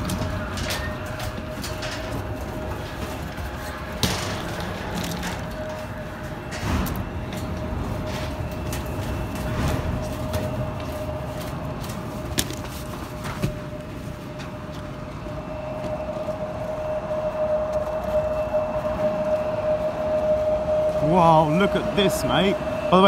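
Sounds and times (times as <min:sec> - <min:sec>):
footsteps on metal grating stairs: 0:00.0 - 0:23.0
mechanical whine: 0:00.0 - 0:23.0
footsteps on packed snow: 0:05.7 - 0:23.0.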